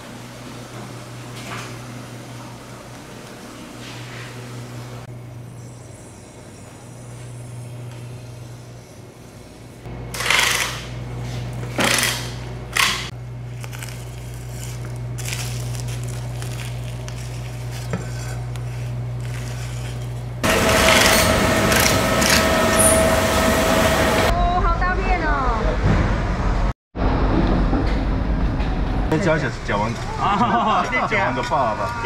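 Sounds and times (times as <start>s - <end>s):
low hum: 12.4s - 30.3s
knife scraping through fish: 13.8s - 20.3s.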